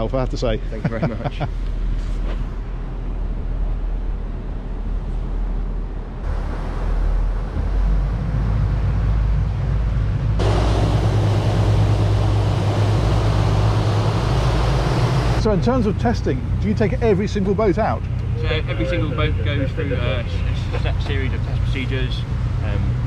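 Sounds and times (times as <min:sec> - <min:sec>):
boat engines droning: 0:00.0 - 0:23.0
churning wake: 0:00.0 - 0:23.0
rushing of air and water: 0:01.7 - 0:15.8.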